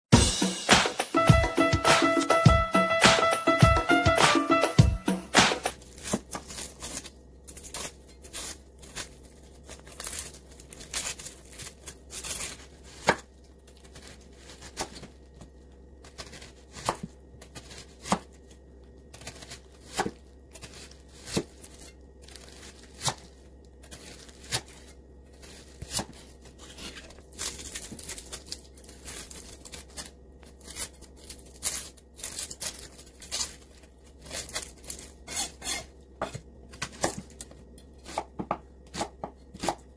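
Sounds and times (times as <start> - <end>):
knife slicing onion: 5.2 - 15.1, 16.0 - 18.4, 19.1 - 33.6, 34.2 - 39.9
onion skin crackling and tearing: 5.6 - 36.0.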